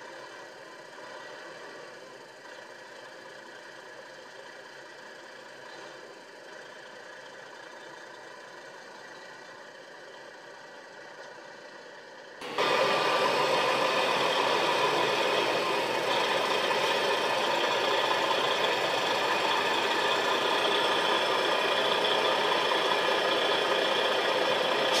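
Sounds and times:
truck diesel engine running: 0:12.4 - 0:25.0.

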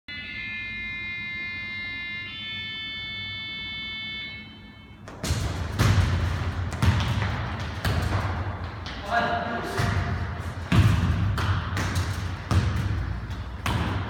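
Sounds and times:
electronic countdown tone: 0:00.1 - 0:05.0
football being kicked: 0:05.1 - 0:09.0, 0:09.7 - 0:14.0
quick footsteps on court floor: 0:05.1 - 0:14.0.

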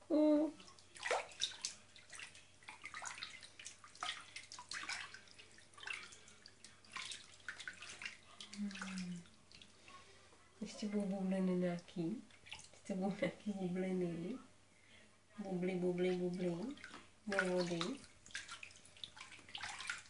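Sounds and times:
person humming: 0:00.0 - 0:00.6
bath water splashing: 0:00.0 - 0:13.4, 0:15.5 - 0:20.0.

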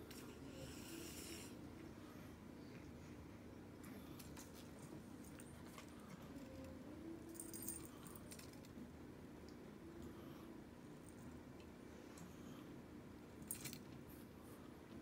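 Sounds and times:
small metal jingle: 0:07.2 - 0:08.7, 0:13.4 - 0:13.9.

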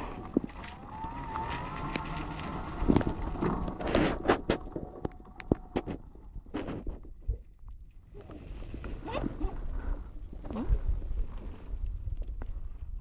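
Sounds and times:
thin whine: 0:00.0 - 0:07.1.

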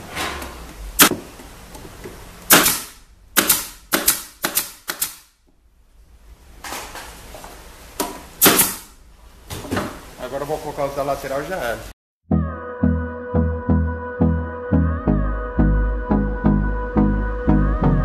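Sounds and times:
pneumatic pin nailer shots: 0:01.0 - 0:01.2, 0:02.5 - 0:05.4, 0:08.4 - 0:09.0.

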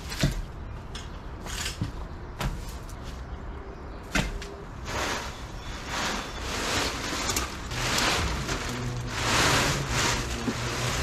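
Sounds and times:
plastic tarp rustling and crinkling: 0:04.8 - 0:11.0.

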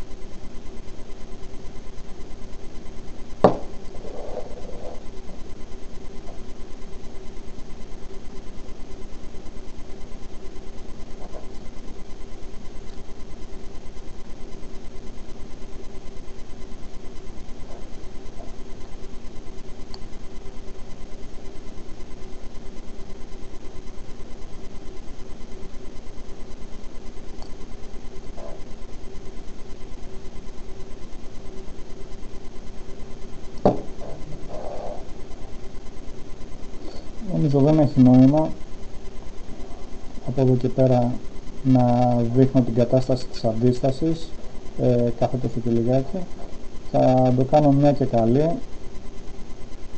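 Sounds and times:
pulsing electrical hum: 0:00.0 - 0:49.9
sharp knock: 0:03.4 - 0:03.8.

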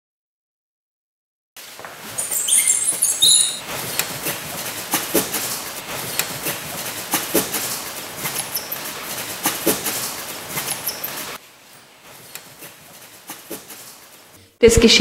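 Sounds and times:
high squeaky chirps: 0:02.1 - 0:03.7, 0:10.8 - 0:11.3.

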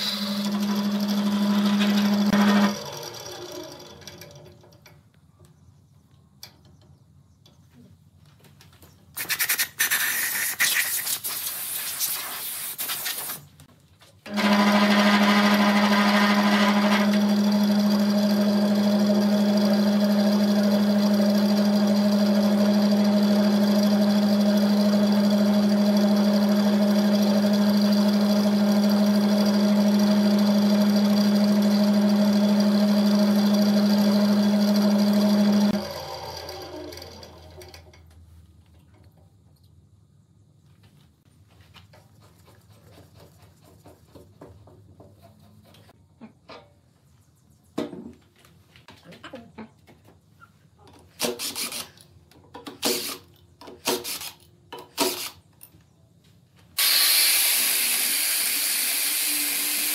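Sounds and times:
lathe motor humming: 0:00.0 - 0:04.5, 0:14.3 - 0:37.6.

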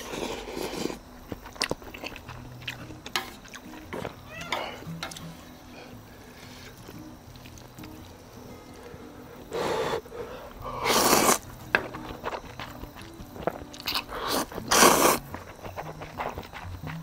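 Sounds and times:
crunchy bites and chewing: 0:00.0 - 0:04.2, 0:08.8 - 0:17.0
faint background music: 0:00.0 - 0:17.0.

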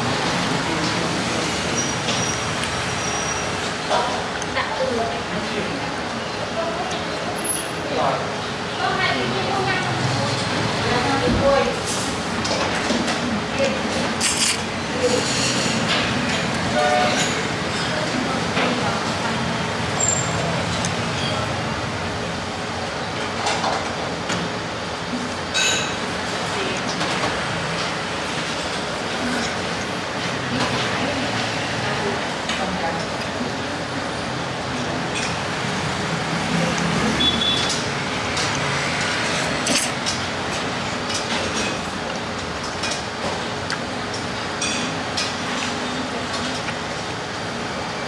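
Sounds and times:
busy eatery murmur: 0:00.0 - 0:48.0
street traffic hum: 0:00.0 - 0:48.0
traffic noise: 0:26.1 - 0:48.0.

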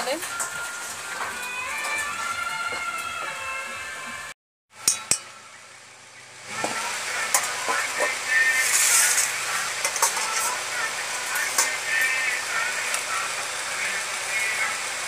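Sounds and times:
metal spoon clicking against pan: 0:04.9 - 0:05.3.

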